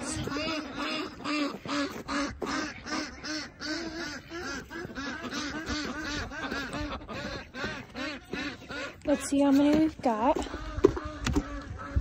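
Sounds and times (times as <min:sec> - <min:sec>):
wind rumbling on microphone: 0:00.0 - 0:03.2, 0:09.7 - 0:12.0
poultry calling: 0:00.0 - 0:12.0.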